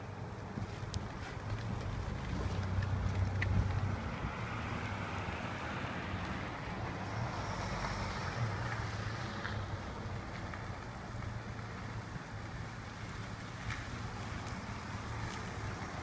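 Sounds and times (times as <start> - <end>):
wind buffeting microphone: 0.9 - 4.7.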